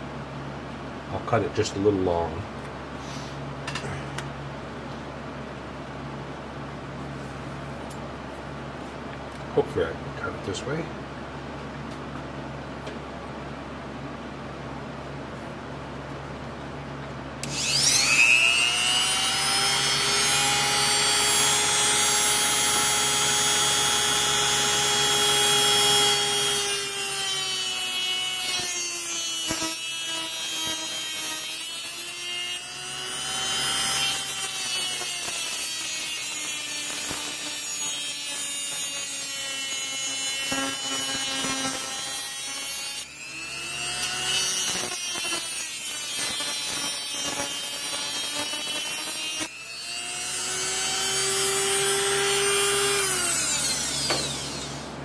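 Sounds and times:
rotary tool cutting steel rod: 0:17.4 - 0:54.9.

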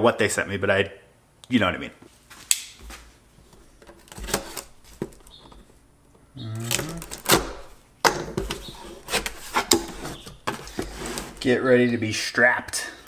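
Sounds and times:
cardboard rustling and scraping: 0:02.2 - 0:05.8, 0:06.6 - 0:11.6
knife slicing packing tape: 0:06.6 - 0:07.7.

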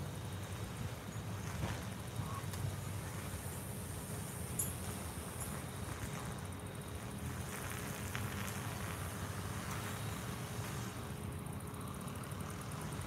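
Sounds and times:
distant road traffic rumble: 0:00.0 - 0:13.0
faint high buzz: 0:00.0 - 0:13.0.

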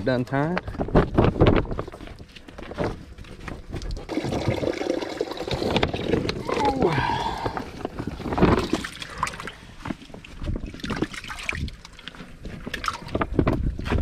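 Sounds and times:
water sloshing and dripping: 0:03.8 - 0:14.0.

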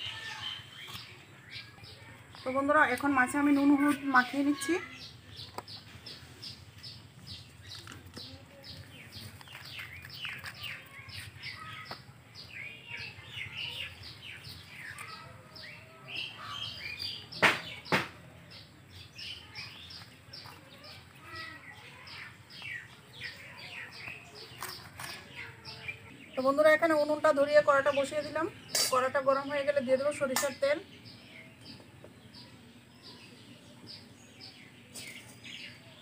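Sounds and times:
small birds chirping: 0:00.0 - 0:36.0
sharp knocks: 0:17.4 - 0:18.2.

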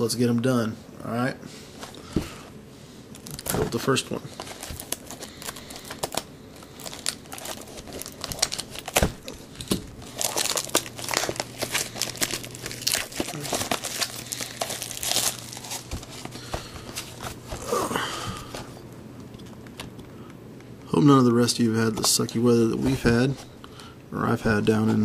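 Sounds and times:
plastic wrap crinkling and tearing: 0:03.2 - 0:18.7.

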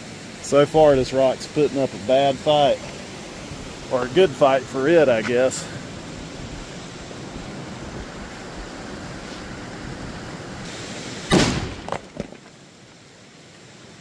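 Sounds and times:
explosive blast: 0:11.3 - 0:12.0.

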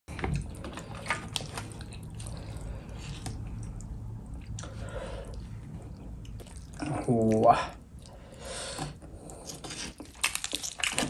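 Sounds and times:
gravy dripping: 0:00.1 - 0:08.4, 0:10.0 - 0:11.0
hands tearing wet fish: 0:09.4 - 0:11.0.

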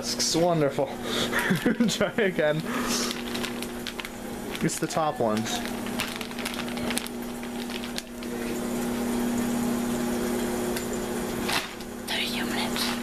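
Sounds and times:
kitchen appliance humming: 0:00.0 - 0:13.0
plastic bag crinkling: 0:02.5 - 0:08.7.

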